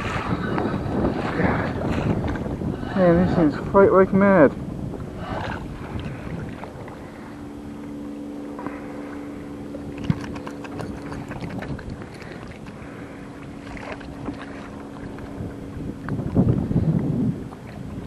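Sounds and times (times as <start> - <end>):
boat motor humming: 0.0 - 18.0
water noise: 0.0 - 18.0
wind: 0.0 - 18.0
fishing clicks and rattles: 9.9 - 12.8.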